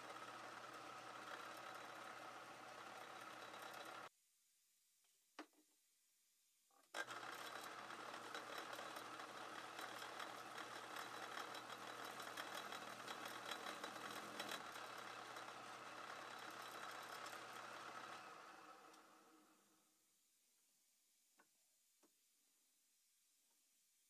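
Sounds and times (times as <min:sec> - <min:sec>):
lathe humming with light clatter: 0:00.0 - 0:04.1, 0:07.0 - 0:19.6
drill cutting steel: 0:07.0 - 0:19.3.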